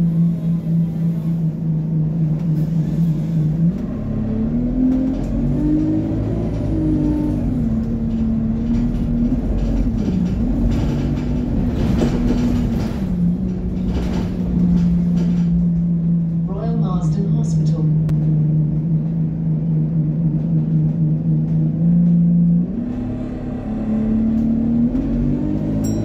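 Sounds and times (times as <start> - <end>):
bus engine droning: 0.0 - 26.0
rattles: 4.8 - 16.4.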